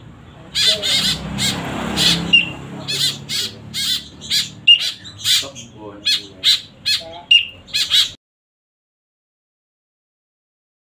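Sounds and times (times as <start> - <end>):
young birds begging squawks: 0.0 - 8.2
high bird whistle: 0.9 - 5.4, 7.3 - 8.2.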